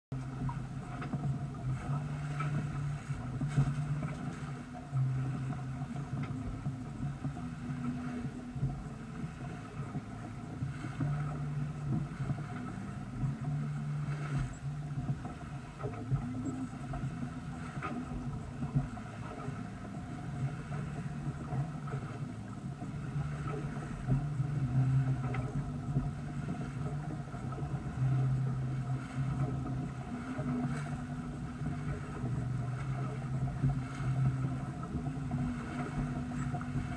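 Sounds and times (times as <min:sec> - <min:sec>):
low hum: 0:00.1 - 0:36.9
water splashing along boat hull: 0:00.1 - 0:36.9
wind buffeting microphone: 0:00.1 - 0:36.9.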